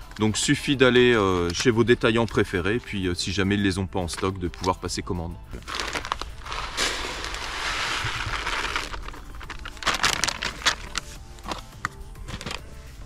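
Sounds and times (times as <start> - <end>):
pellets rattling into plastic bowl: 5.6 - 11.6.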